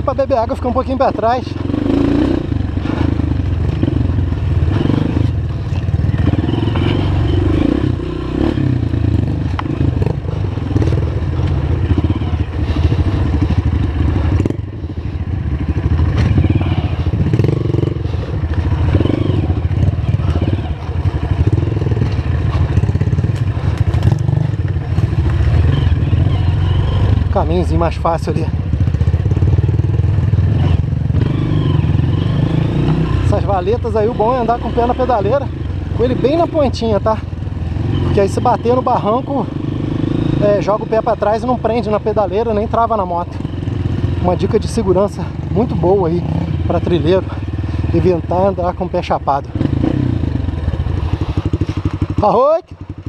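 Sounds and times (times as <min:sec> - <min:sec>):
dirt bike engine running: 0:00.0 - 0:53.0
bike clattering over rough trail: 0:15.3 - 0:31.0.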